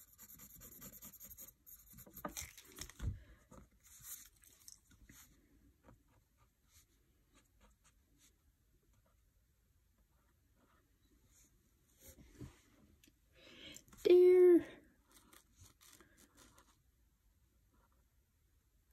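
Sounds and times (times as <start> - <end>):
pen scratching on paper: 0.0 - 2.5.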